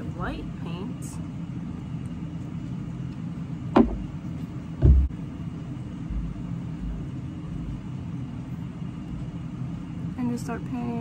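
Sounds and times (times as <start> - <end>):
steady low hum: 0.0 - 11.0
dull low thud: 3.7 - 4.1, 4.8 - 5.2
sharp knocks: 3.7 - 4.1, 4.8 - 5.2
soft low bumps: 3.8 - 4.2, 4.8 - 5.3.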